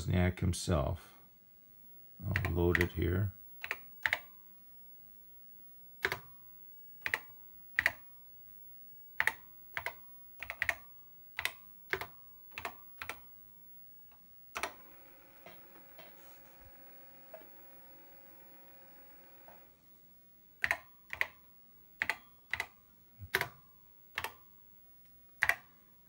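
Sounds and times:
keyboard keystrokes: 2.3 - 3.0, 6.0 - 6.3, 7.0 - 8.0, 9.2 - 13.2, 14.6 - 19.7, 20.6 - 21.4, 22.0 - 24.4, 25.4 - 25.7
floppy disk drive humming: 14.2 - 20.1.

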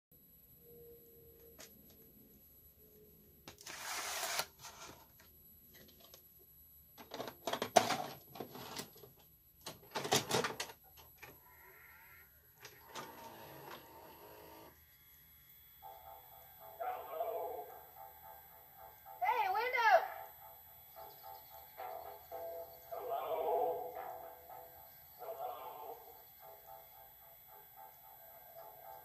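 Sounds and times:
tape mechanism whirring: 3.5 - 5.1, 12.6 - 14.8
mechanism clunking and clicking: 9.6 - 11.4.

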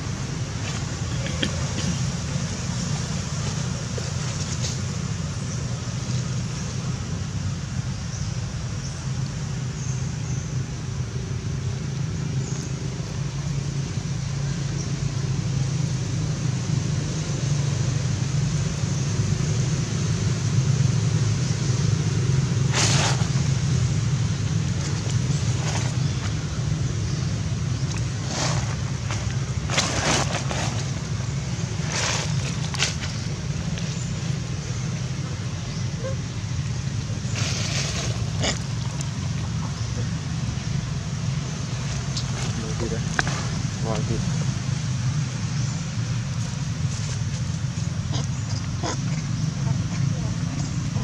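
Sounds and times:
vehicle engine rumbling: 0.0 - 51.0
dry leaves crackling: 22.4 - 43.9.

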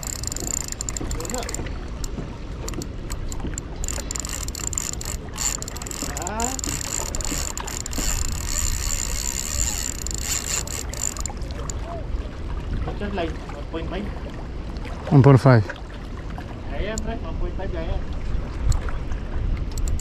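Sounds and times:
fishing reel whirring: 0.0 - 11.8, 19.7 - 20.0
reel clicks: 0.0 - 11.9, 16.8 - 17.2, 19.6 - 20.0.

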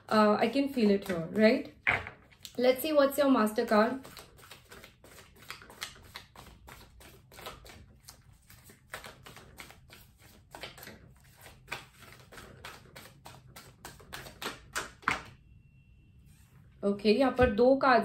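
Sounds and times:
cards being shuffled: 4.0 - 15.2.

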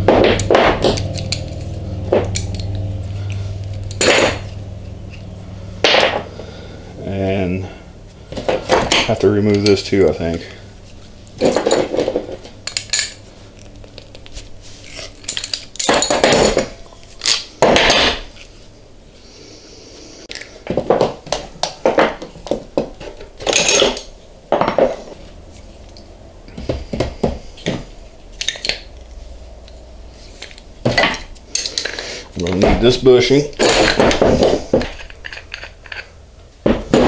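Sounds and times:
metal pipe fittings clanking: 0.2 - 6.3, 30.4 - 36.2.

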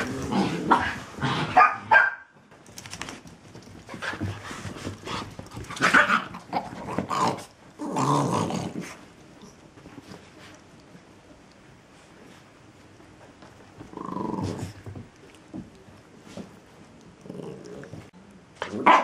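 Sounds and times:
small dogs barking: 0.7 - 2.3, 18.7 - 19.0.

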